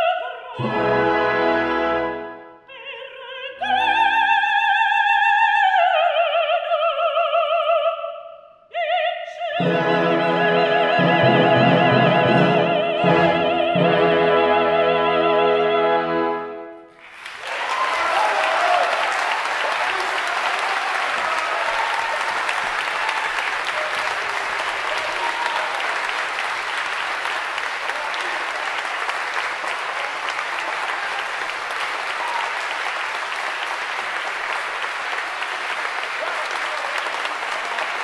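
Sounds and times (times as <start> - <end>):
audience applauding: 16.9 - 38.0.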